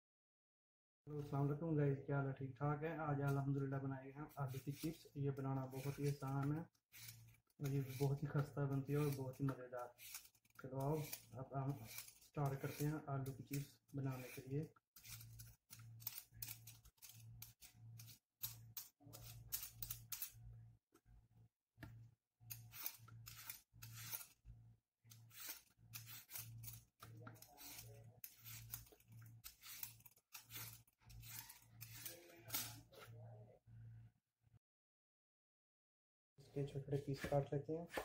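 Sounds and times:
peeler scraping potato: 0:04.2 - 0:20.4, 0:22.5 - 0:24.4, 0:25.0 - 0:33.0.

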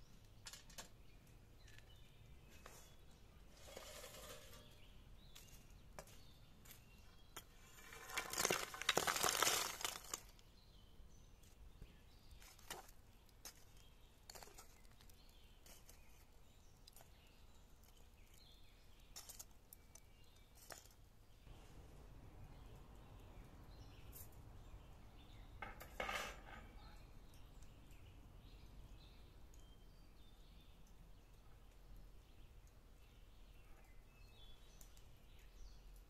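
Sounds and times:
charcoal tumbling into grill: 0:03.5 - 0:04.8, 0:07.6 - 0:10.3, 0:25.6 - 0:26.8
tongs clicking on charcoal: 0:34.7 - 0:36.0.

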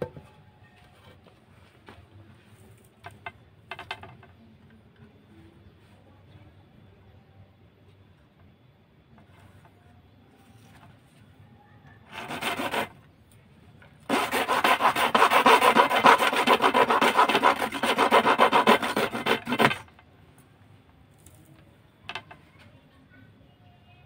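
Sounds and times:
knife sawing rod: 0:12.1 - 0:13.0, 0:14.1 - 0:19.9.

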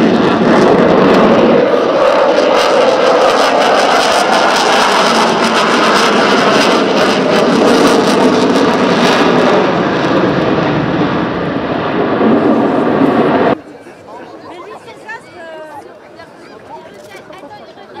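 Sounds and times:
jet engines passing: 0:00.0 - 0:14.4.

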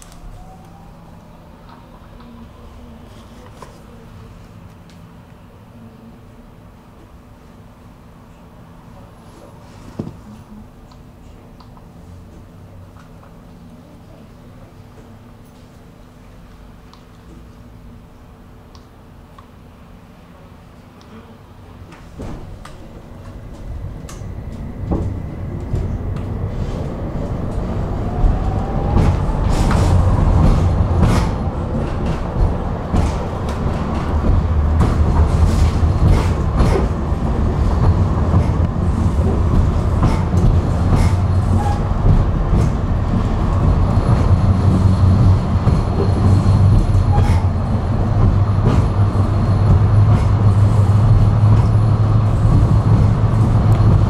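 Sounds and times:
tram motor whine: 0:00.0 - 0:09.2, 0:21.6 - 0:54.0
tram rumble: 0:00.0 - 0:54.0
knocks from the track: 0:28.9 - 0:37.0.

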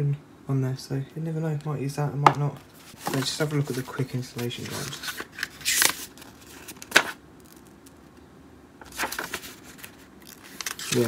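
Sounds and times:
paper rustling: 0:02.6 - 0:07.9, 0:08.8 - 0:11.0
paper snapping: 0:08.8 - 0:11.0.

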